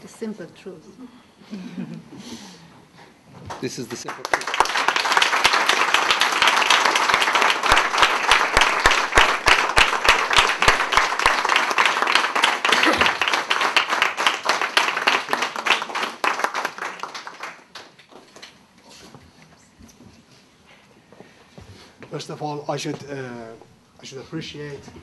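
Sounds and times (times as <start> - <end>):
audience applauding: 3.5 - 18.1
sharp nearby claps: 3.5 - 18.1.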